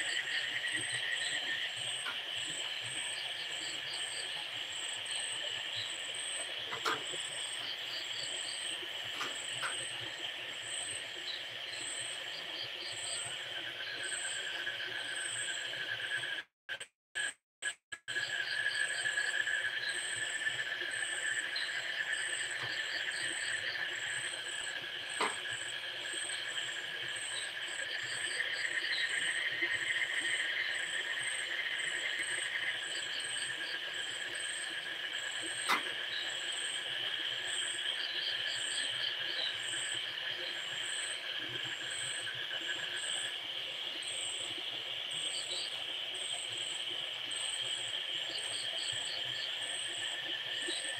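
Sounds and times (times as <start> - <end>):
crickets trilling: 18.1 - 50.9.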